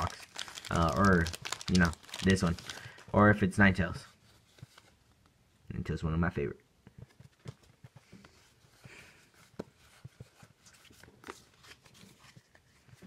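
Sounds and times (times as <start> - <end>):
foil wrapper crinkling: 0.0 - 3.2.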